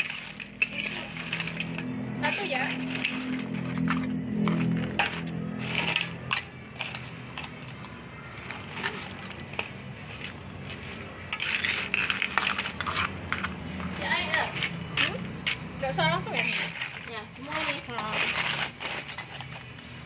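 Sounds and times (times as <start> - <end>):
shells clicking and cracking: 2.8 - 15.8.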